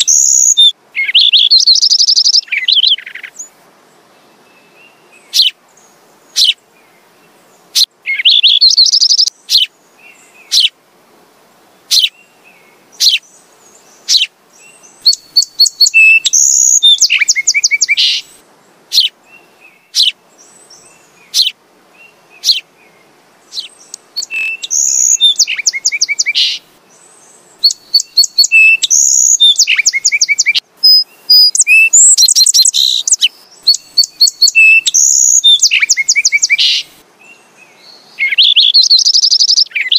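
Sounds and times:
sparrow chirping: 0.0s - 3.5s, 5.3s - 5.6s, 6.3s - 6.6s, 7.8s - 9.7s, 10.5s - 10.7s, 11.9s - 12.2s, 13.0s - 18.3s, 18.9s - 19.1s, 19.8s - 21.6s, 22.4s - 22.7s, 23.5s - 36.9s, 38.0s - 39.9s.

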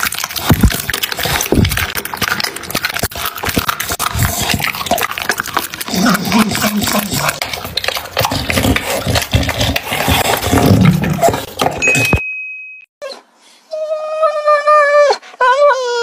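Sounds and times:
dog low throaty sounds: 0.0s - 11.9s
dog chewing and crunching: 0.0s - 12.2s.

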